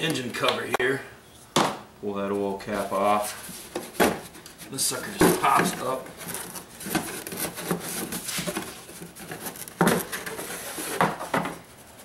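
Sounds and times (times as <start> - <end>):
rustling and rubbing: 3.0 - 12.0.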